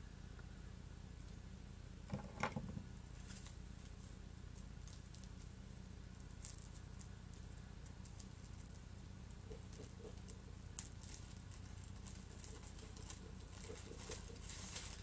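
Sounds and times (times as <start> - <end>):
low steady hum: 0.0 - 15.0
fingers picking at paper wrapping: 9.4 - 15.0.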